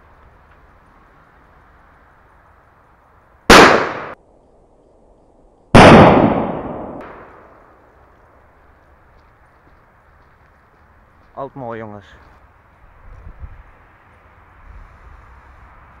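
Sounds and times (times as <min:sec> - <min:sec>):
firework bangs echoing: 0:03.5 - 0:04.2, 0:05.7 - 0:07.6.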